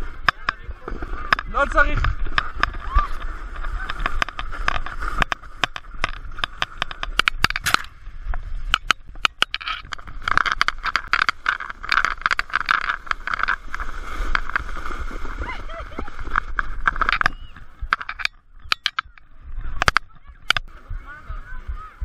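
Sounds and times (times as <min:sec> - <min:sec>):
sled knocking over ruts: 0:00.0 - 0:21.9
sled scraping hiss on snow: 0:10.1 - 0:17.1.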